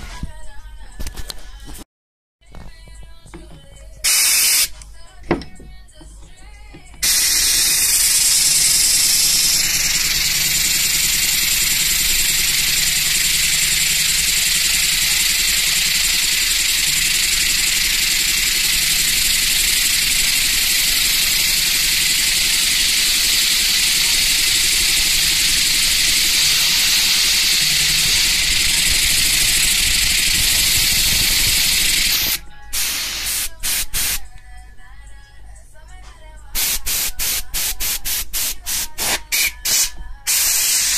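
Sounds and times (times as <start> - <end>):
compressed air hissing: 4.0 - 4.8, 7.0 - 34.3, 36.6 - 40.9.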